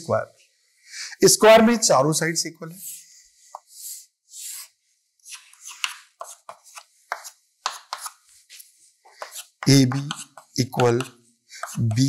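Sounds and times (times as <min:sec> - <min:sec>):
chalk scraping on blackboard: 0:02.8 - 0:12.0
chalk scratches and taps: 0:02.8 - 0:12.0.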